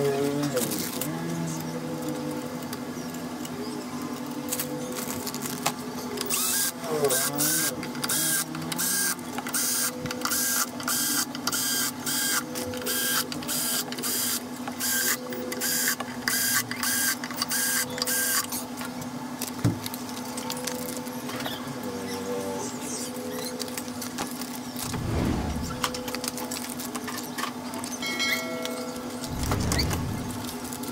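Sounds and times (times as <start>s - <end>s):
machine hum: 24.6s - 27.0s, 29.0s - 30.9s
machine scraping strokes: 24.8s - 26.1s, 29.3s - 30.8s.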